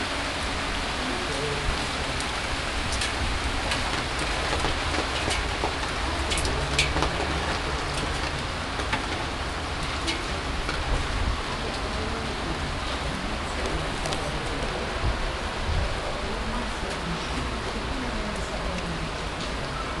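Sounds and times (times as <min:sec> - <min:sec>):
heavy rain falling: 0:00.0 - 0:20.0
raindrops ticking close by: 0:00.0 - 0:20.0.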